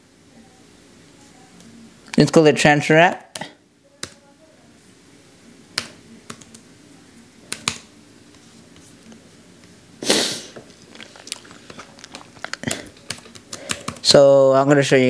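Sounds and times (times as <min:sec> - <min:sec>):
computer keys clicking: 0:05.8 - 0:06.6, 0:07.5 - 0:07.9, 0:12.0 - 0:14.1.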